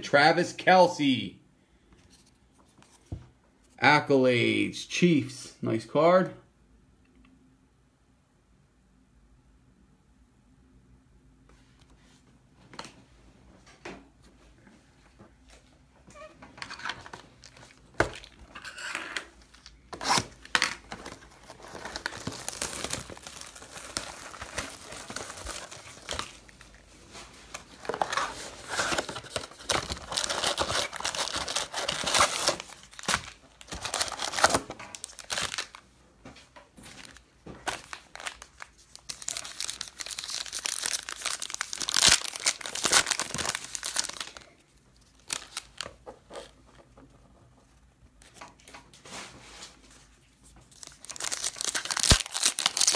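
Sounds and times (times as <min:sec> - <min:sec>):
foil wrappers tearing and crinkling: 0:19.5 - 0:26.8, 0:27.8 - 0:35.8, 0:37.0 - 0:45.9, 0:50.7 - 0:52.9.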